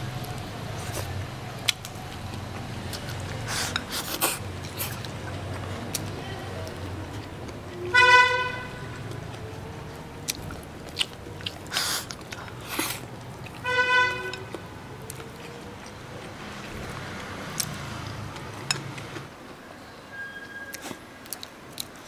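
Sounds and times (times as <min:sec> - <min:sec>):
chewing with crunches: 0:00.0 - 0:08.0, 0:08.8 - 0:19.4, 0:20.7 - 0:22.0
vehicle horn toots: 0:07.9 - 0:09.0, 0:13.6 - 0:14.5.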